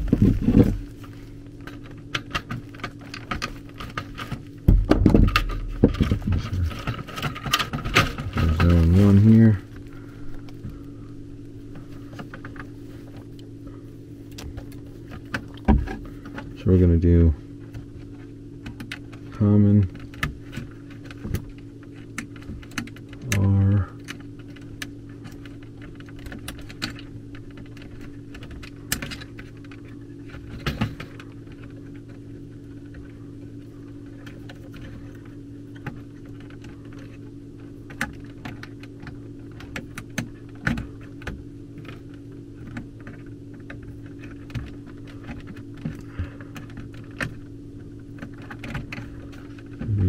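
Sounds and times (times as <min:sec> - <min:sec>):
wires clicking and tapping: 0:00.0 - 0:10.8
steady low hum: 0:00.0 - 0:50.0.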